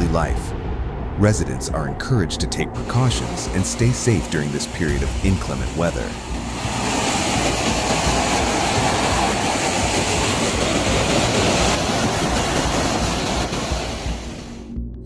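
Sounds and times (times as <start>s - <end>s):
floodwater rushing over a wall: 2.8s - 14.5s.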